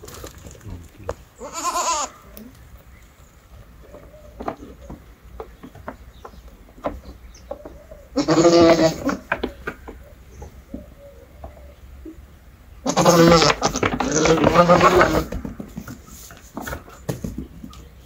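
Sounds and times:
goat bleating: 1.4 - 2.4, 8.0 - 9.3, 12.8 - 15.4.

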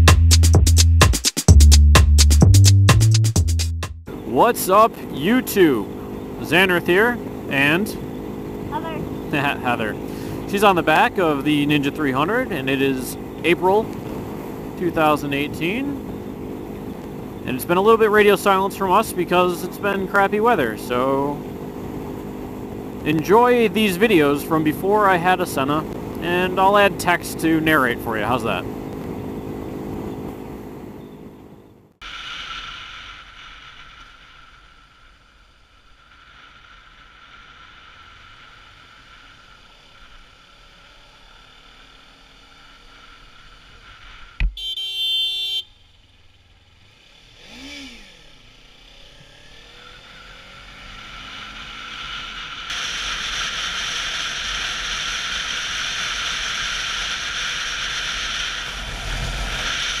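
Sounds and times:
motorcycle engine running: 4.0 - 31.9, 37.5 - 60.0
wind and road noise: 4.1 - 60.0
brief high tone: 8.7 - 9.2, 44.4 - 45.7.

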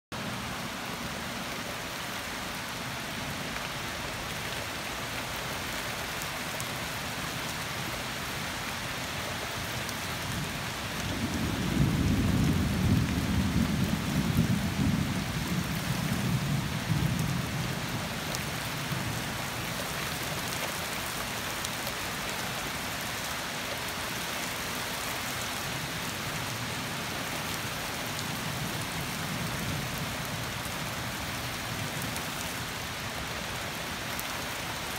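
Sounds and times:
steady rain falling: 0.1 - 34.9
low rumble of thunder: 10.8 - 19.3.

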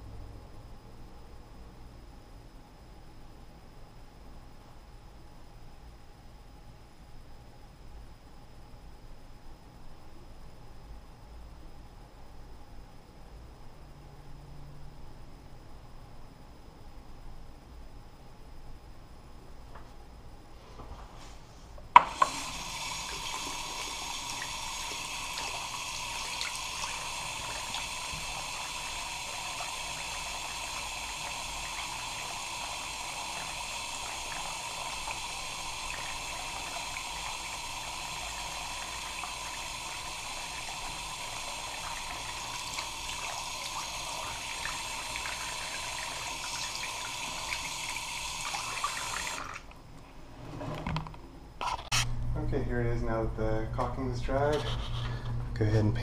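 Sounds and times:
water running from tap: 22.0 - 49.7.

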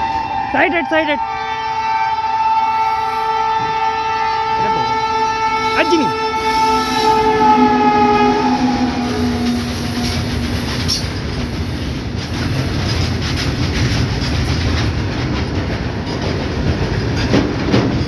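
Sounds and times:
locomotive horn: 0.0 - 11.2
freight wagons rolling over rail joints: 8.4 - 18.0.

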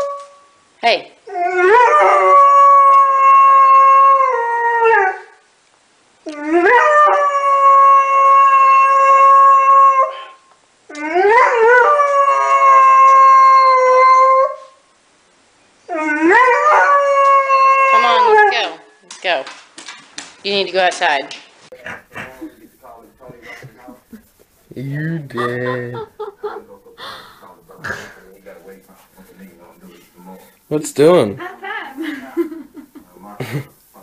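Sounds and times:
dog howling: 1.3 - 5.3, 6.3 - 14.7, 15.9 - 18.8.

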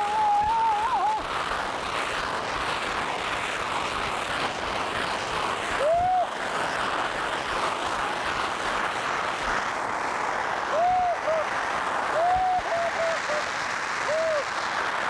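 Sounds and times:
fireworks hissing spark jets: 0.0 - 15.0.

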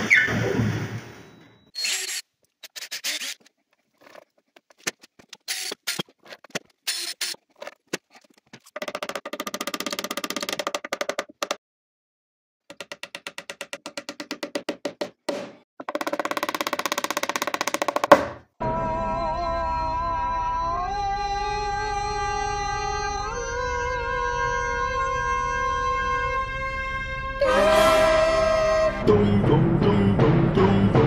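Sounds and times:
percussion music: 15.8 - 18.4.

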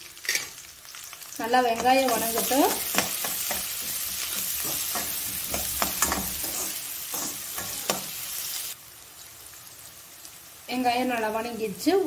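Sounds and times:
onions sizzling in hot oil: 0.0 - 12.0
metal spoon scraping a pan: 0.2 - 0.6, 1.8 - 8.2.

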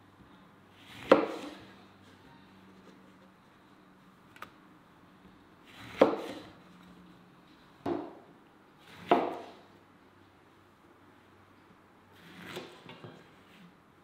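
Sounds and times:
knife cutting through orange: 12.2 - 13.0.

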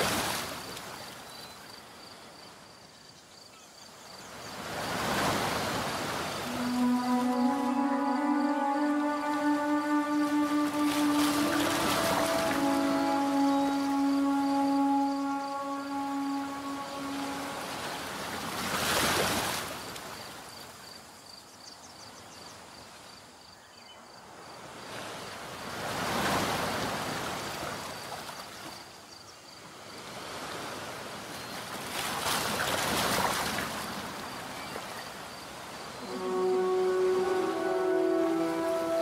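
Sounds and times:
surf washing in: 4.5 - 19.9, 36.0 - 39.0
music: 6.5 - 18.3, 36.0 - 39.0.

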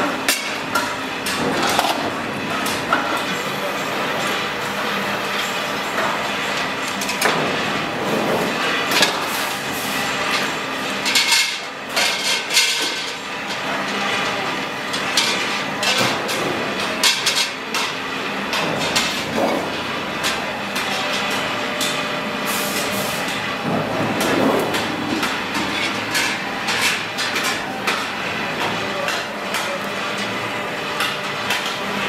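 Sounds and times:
steady workshop din: 0.0 - 32.0.

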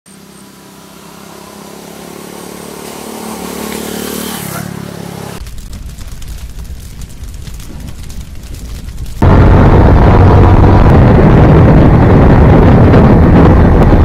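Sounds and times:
motorcycle engine passing: 0.1 - 5.4
deep rumbling boom with crackles: 5.4 - 14.0.

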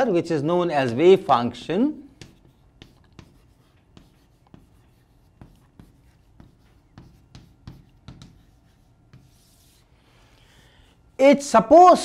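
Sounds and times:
chalk writing on chalkboard: 2.1 - 9.9.

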